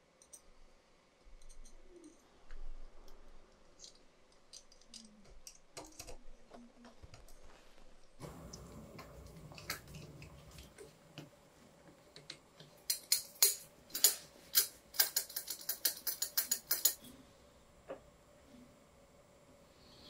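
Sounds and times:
metal parts and tools clicking: 1.3s - 2.2s, 3.0s - 6.7s, 12.8s - 17.1s.

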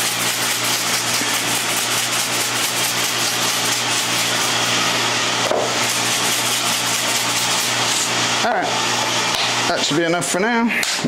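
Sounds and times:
machine hissing: 0.0s - 8.5s
machine humming: 0.0s - 10.8s.

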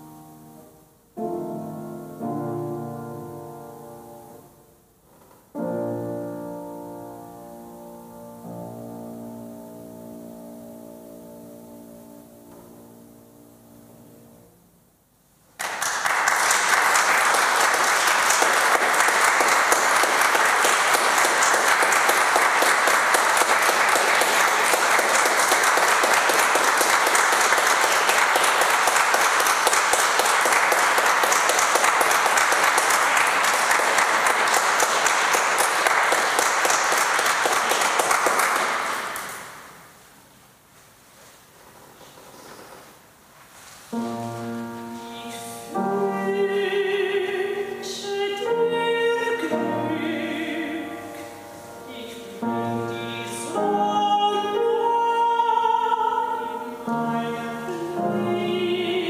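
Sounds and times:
audience applause: 15.6s - 39.8s.

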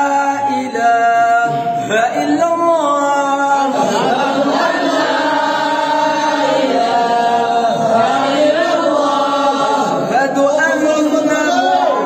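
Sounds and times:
men chanting together: 0.0s - 11.3s.

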